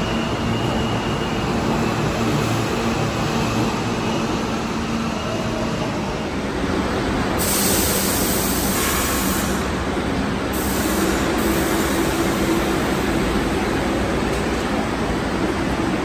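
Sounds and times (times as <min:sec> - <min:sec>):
subway train rumble: 0:00.0 - 0:16.0
loud hiss of air: 0:07.4 - 0:13.2.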